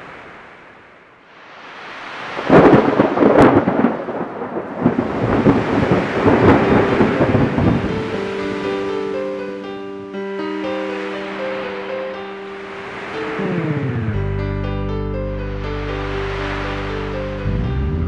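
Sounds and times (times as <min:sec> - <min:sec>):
thunder-like rumble with cracks: 0:02.4 - 0:08.1
plucked guitar notes: 0:13.3 - 0:15.9, 0:17.0 - 0:18.0.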